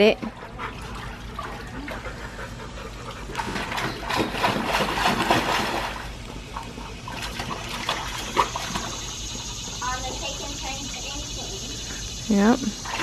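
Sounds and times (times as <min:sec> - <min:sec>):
water splashing in a pool: 0:00.0 - 0:11.9, 0:12.7 - 0:13.0
garden hose running: 0:00.0 - 0:13.0.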